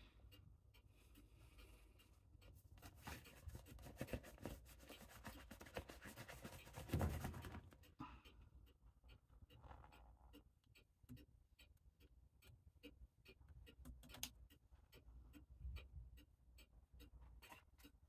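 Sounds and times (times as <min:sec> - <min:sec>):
rubber glove rubbing and crackling: 0:02.8 - 0:07.8.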